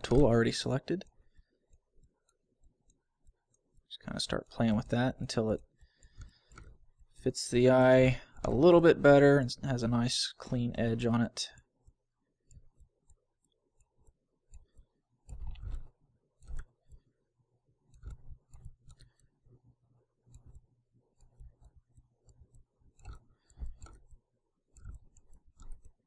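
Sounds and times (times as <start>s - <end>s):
computer mouse clicks: 1.1s - 8.6s, 11.5s - 17.1s, 17.8s - 19.6s, 20.2s - 26.0s.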